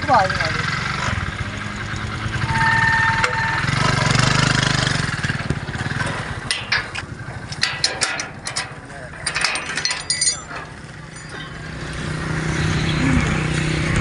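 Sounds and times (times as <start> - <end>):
engine running steadily: 0.0 - 14.0
short steady tone: 2.5 - 3.8
metal latch clinks and knocks: 6.5 - 11.6.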